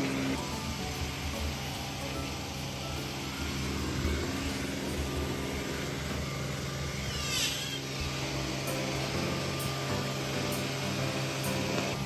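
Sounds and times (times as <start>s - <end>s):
robot vacuum motor hum: 0.0s - 12.0s
high sweeping chirp: 6.7s - 8.1s.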